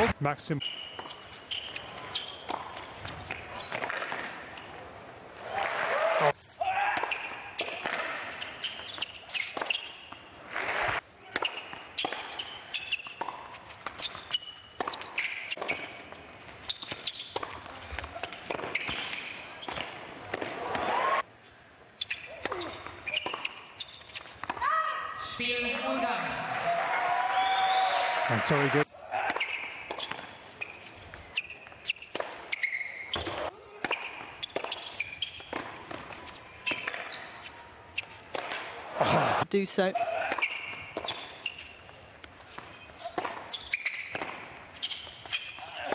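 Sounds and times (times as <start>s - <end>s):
shoes squeaking on court: 0.0s - 4.9s, 6.3s - 20.9s, 21.9s - 26.2s, 29.1s - 45.9s
racket hitting tennis ball: 0.9s - 4.8s, 6.7s - 20.9s, 22.0s - 24.9s, 29.2s - 45.9s
ball bouncing: 1.0s - 4.4s, 6.9s - 20.8s, 33.1s - 39.4s, 40.2s - 41.6s, 42.2s - 44.5s.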